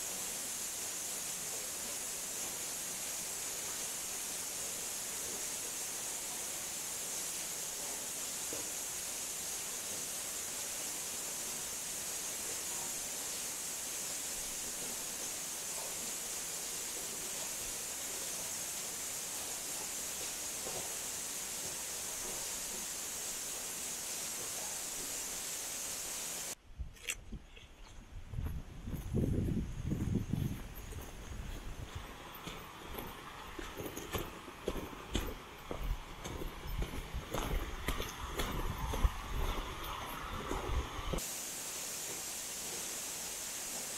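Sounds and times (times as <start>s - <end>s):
stream water rushing: 0.0s - 26.6s, 31.8s - 43.9s
footsteps on forest path: 27.0s - 41.2s.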